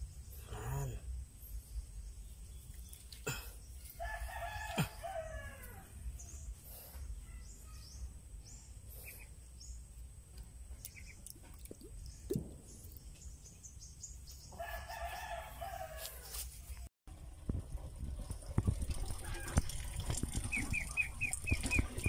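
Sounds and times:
rooster crowing: 0:03.9 - 0:06.0, 0:14.6 - 0:16.4.

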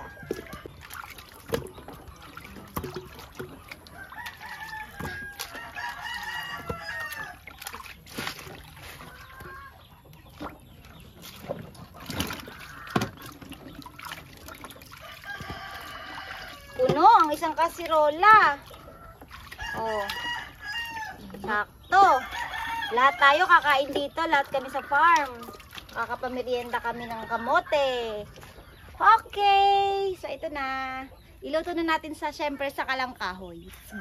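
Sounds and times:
chickens clucking: 0:00.0 - 0:34.0
water sloshing in basin: 0:00.0 - 0:34.0
rooster crowing: 0:04.0 - 0:07.4, 0:15.0 - 0:16.8, 0:19.6 - 0:21.2, 0:22.1 - 0:23.3.

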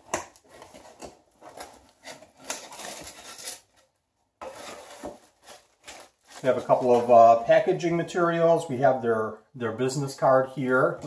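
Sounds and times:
packing material rustling: 0:00.3 - 0:07.4.

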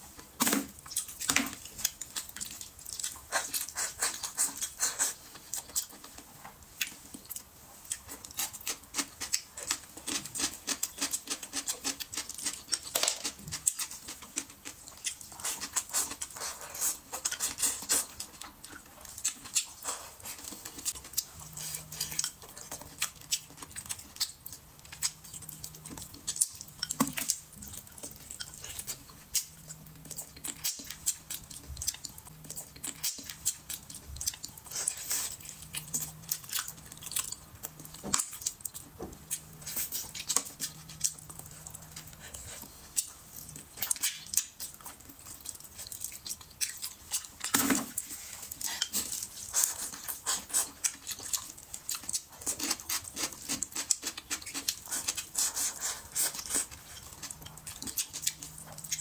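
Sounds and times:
chewing meat off bone: 0:00.6 - 0:59.0.

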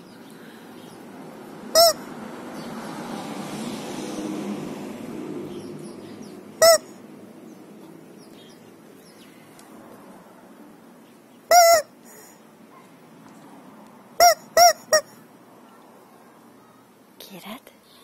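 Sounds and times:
rubber squeak toy squawking: 0:01.8 - 0:02.0, 0:06.6 - 0:07.0, 0:11.5 - 0:12.0, 0:14.2 - 0:15.2.

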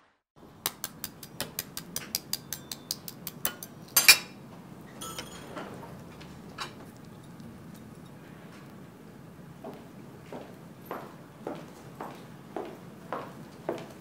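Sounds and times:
cutlery clinking on china: 0:02.0 - 0:04.4, 0:05.0 - 0:08.3
cutlery scraping: 0:03.4 - 0:04.4, 0:05.0 - 0:08.4.

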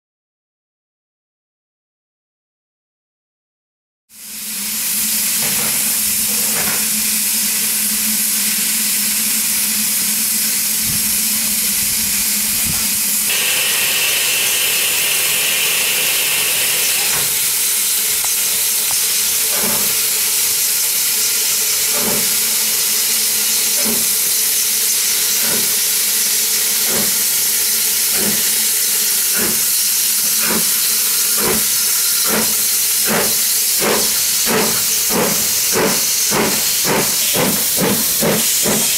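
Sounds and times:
steam hissing from locomotive: 0:04.1 - 0:38.9
steam locomotive exhaust beats: 0:04.2 - 0:38.9
high steam whistle: 0:09.1 - 0:38.9.

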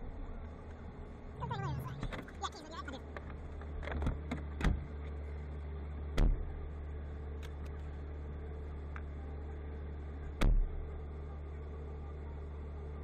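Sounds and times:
truck engine idling: 0:00.0 - 0:13.0
loud thump: 0:06.2 - 0:06.5.

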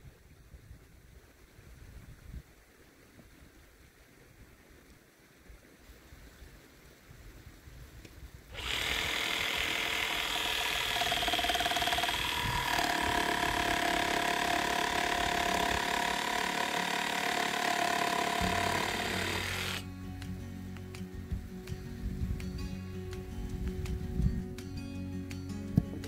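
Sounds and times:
motorized tool whining: 0:08.5 - 0:19.8.

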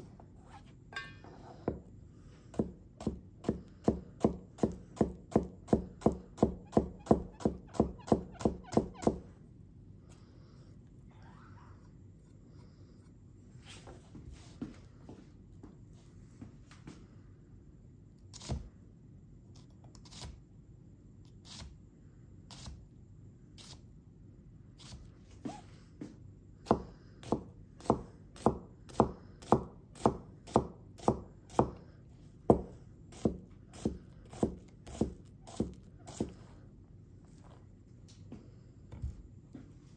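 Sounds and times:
knife cutting onion on board: 0:02.5 - 0:09.3, 0:18.3 - 0:18.7, 0:19.6 - 0:20.4, 0:22.5 - 0:22.8, 0:23.6 - 0:23.8, 0:26.6 - 0:31.8, 0:32.5 - 0:36.5.

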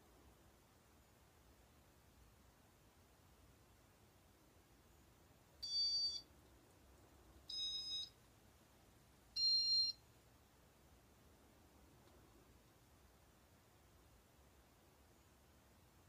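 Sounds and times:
short electronic beeps: 0:07.5 - 0:08.1.

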